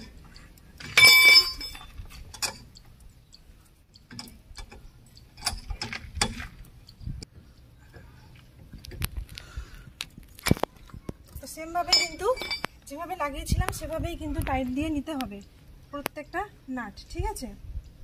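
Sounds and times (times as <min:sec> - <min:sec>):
wheel spanner clinking on wheel nuts: 0:00.0 - 0:03.4, 0:11.9 - 0:12.7.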